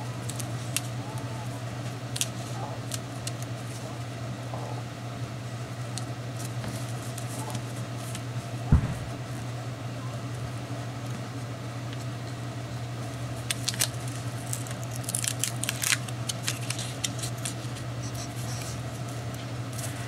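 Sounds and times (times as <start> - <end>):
steady low hum: 0.0 - 20.0
thump: 8.7 - 9.2
paper rustling: 13.5 - 18.8.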